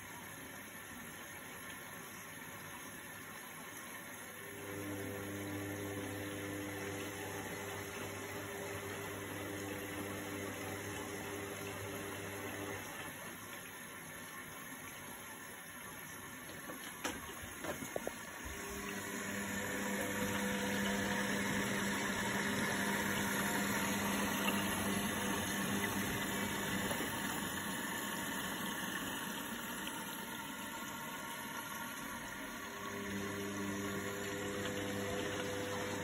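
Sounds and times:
washing machine water rushing: 0.0s - 36.0s
low electric motor hum: 4.4s - 13.4s, 17.3s - 36.0s.

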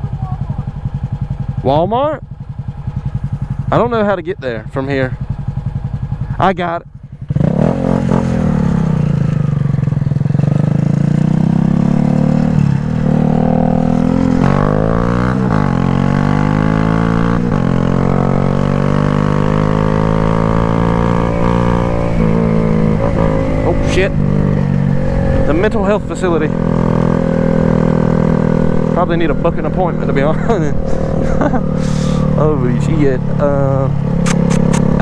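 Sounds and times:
motorcycle engine changing gears: 0.7s - 35.0s.

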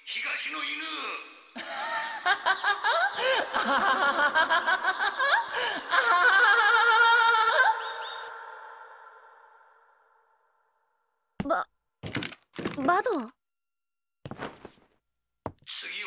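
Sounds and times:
cackling laughter with echo: 1.6s - 8.3s.

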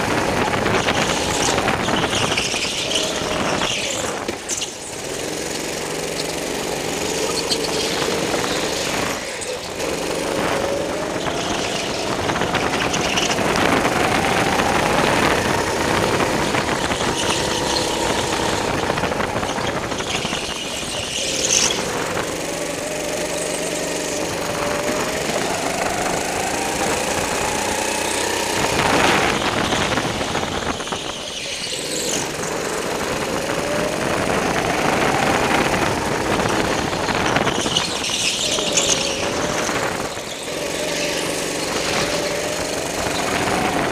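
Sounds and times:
go-kart engine revving: 0.0s - 43.9s
tyre squeals: 0.0s - 43.9s.

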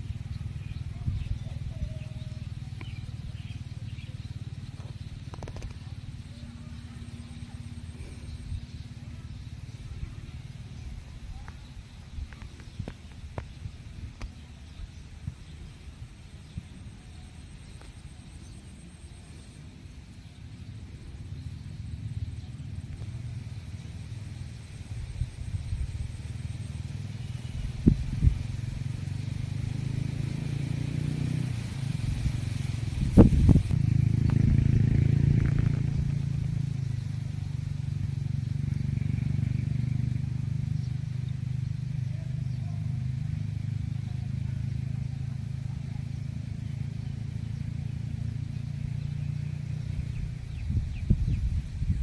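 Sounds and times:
vehicle engine humming: 0.0s - 52.0s.

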